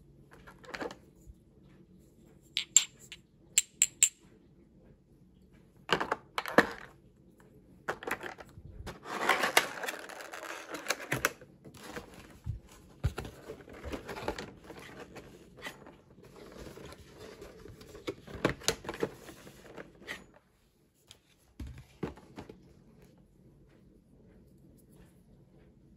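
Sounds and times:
cardboard scraping and rustling: 11.8 - 20.3.

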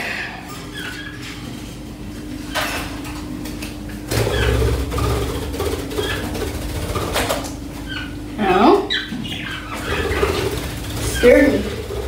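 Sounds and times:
steady low hum: 0.0 - 12.0
rustling and bumping of objects: 1.2 - 8.0.

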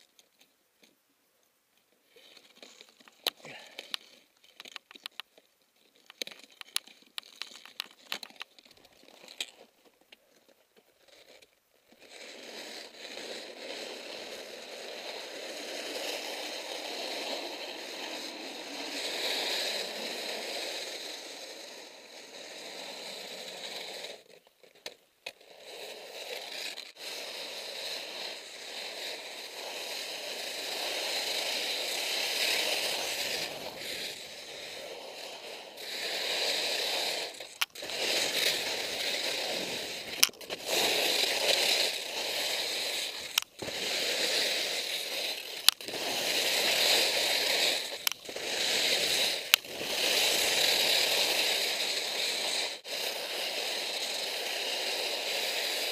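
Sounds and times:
skis scraping on snow: 11.9 - 24.3, 25.3 - 55.9.

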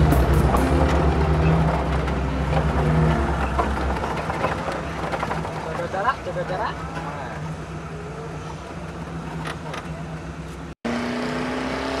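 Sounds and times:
engine running at low revs: 6.8 - 12.0.

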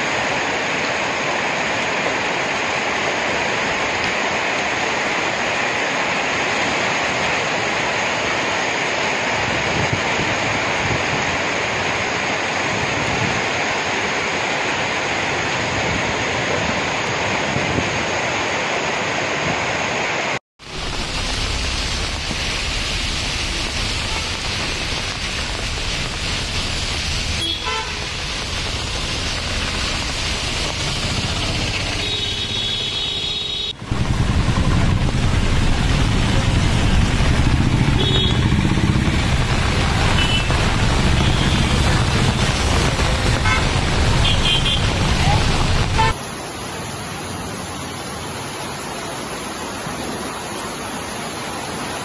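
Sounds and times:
floodwater rushing across road: 0.0 - 52.0
heavy rain pouring: 0.0 - 52.0
vehicles passing through water: 0.0 - 52.0
car horns tooting: 27.4 - 28.1, 32.0 - 33.8, 43.3 - 45.0, 45.9 - 46.2.

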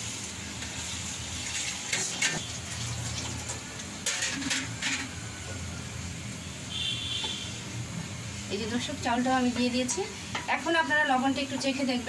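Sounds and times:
spatula clattering in pot: 4.0 - 5.1.

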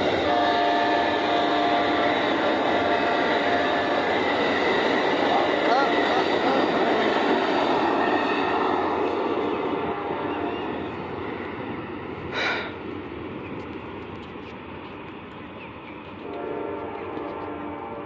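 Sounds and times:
train horn: 0.0 - 4.4, 16.2 - 18.0
passenger train rumbling: 0.0 - 18.0.

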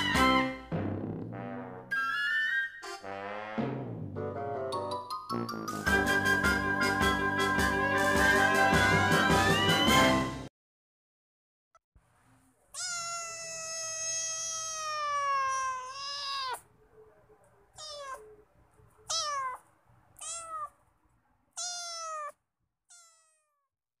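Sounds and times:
cat meowing: 12.7 - 16.7, 17.7 - 18.4, 19.0 - 20.8, 21.5 - 23.7.

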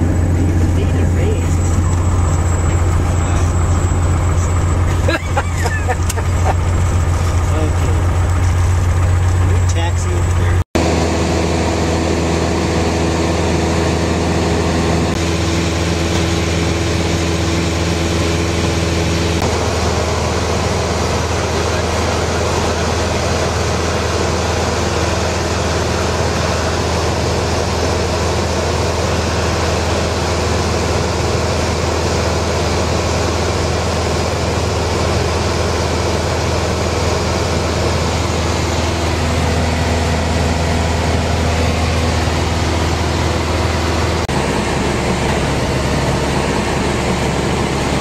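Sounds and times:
strong low hum: 0.0 - 26.3, 36.3 - 48.0
airplane engine and propeller drone: 0.0 - 48.0.

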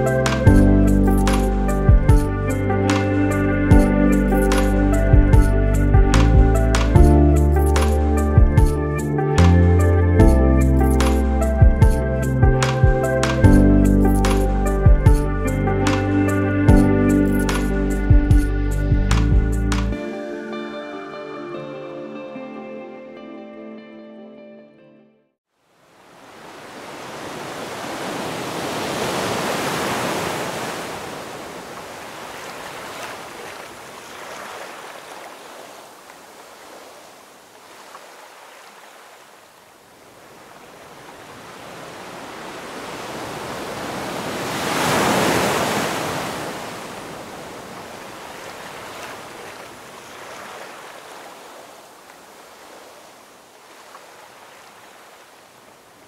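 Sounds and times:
ocean surf breaking on beach: 25.7 - 56.0.

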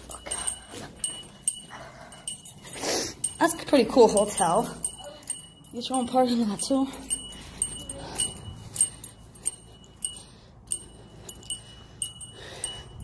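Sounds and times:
footsteps walking: 0.0 - 11.6
metallic jingle: 0.0 - 13.0.

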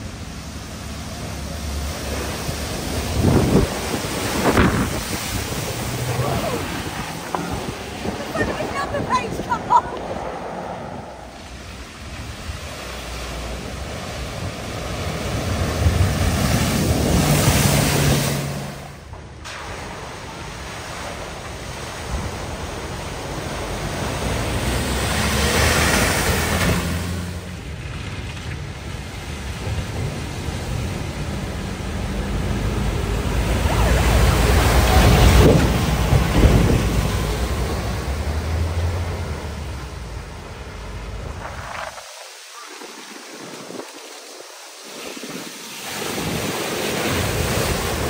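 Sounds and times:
low engine hum: 0.0 - 42.0
water rushing and splashing: 0.0 - 48.0.

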